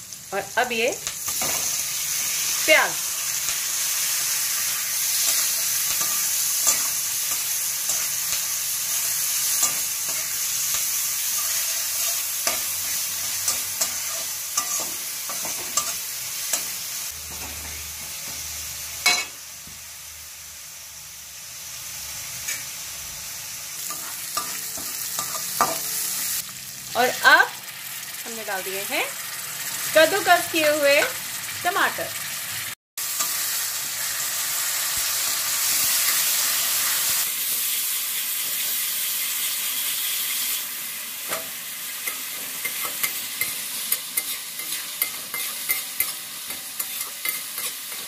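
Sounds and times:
onions sizzling in hot oil: 0.0s - 48.0s
metal spatula scraping a pan: 4.4s - 17.7s, 41.3s - 48.0s.

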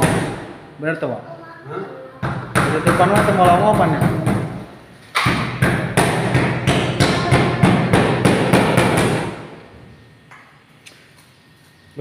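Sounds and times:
rapid hammer blows on ceiling: 5.2s - 9.6s.

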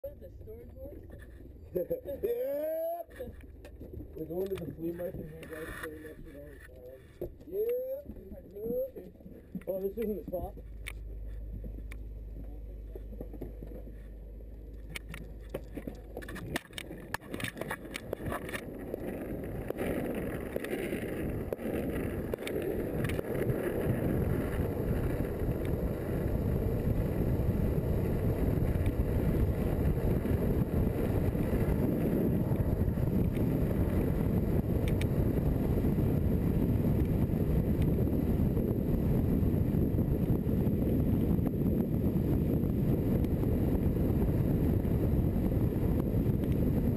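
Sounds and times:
wheels rolling on asphalt: 0.0s - 46.9s
wind rushing over camera: 0.1s - 46.9s
sharp clicks and knocks: 14.7s - 18.7s.

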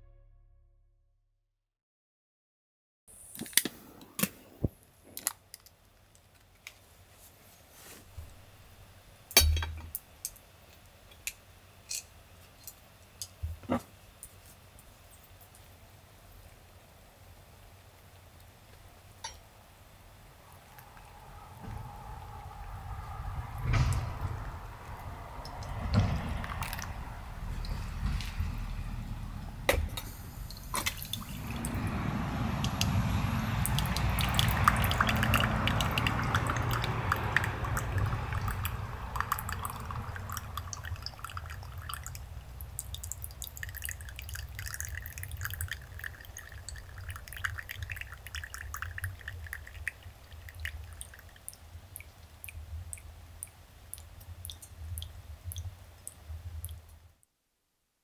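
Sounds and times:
liquid pouring and dripping: 20.4s - 57.0s.

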